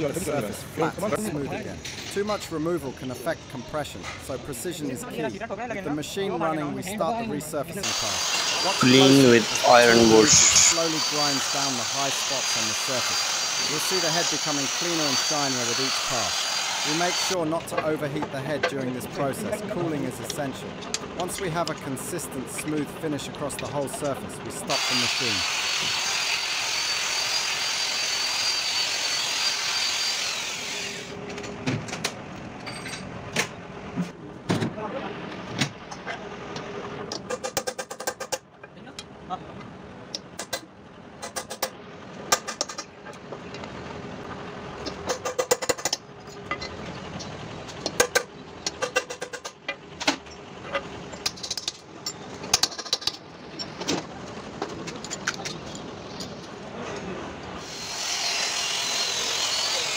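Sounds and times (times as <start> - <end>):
rotary power tool whining: 7.8 - 17.4, 24.7 - 31.2, 57.6 - 59.9.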